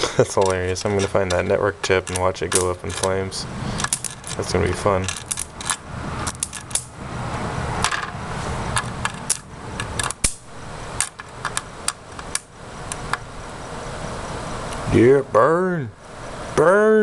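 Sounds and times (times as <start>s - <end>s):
electrical arcing snaps and pops: 8.9s - 10.4s.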